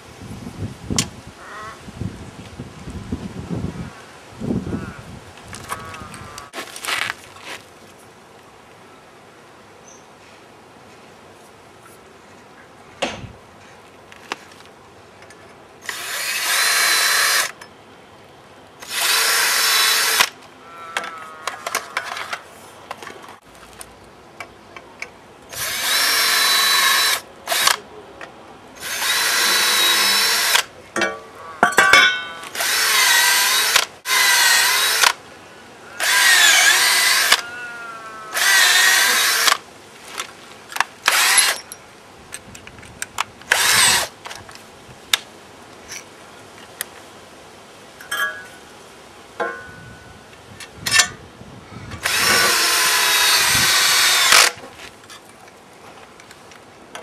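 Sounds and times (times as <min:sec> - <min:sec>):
cordless drill boring into wood: 0:15.8 - 0:17.5, 0:18.8 - 0:20.3, 0:25.5 - 0:27.8, 0:28.8 - 0:30.7, 0:32.6 - 0:35.2, 0:36.0 - 0:37.5, 0:38.3 - 0:39.6, 0:41.1 - 0:41.6, 0:43.5 - 0:44.1, 0:52.0 - 0:54.6.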